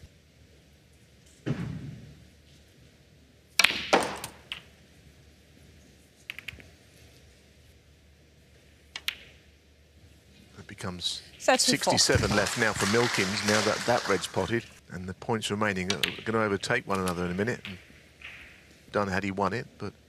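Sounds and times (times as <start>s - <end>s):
snooker balls clicking: 3.6s - 4.8s, 6.3s - 6.8s, 9.0s - 9.4s, 15.9s - 16.3s.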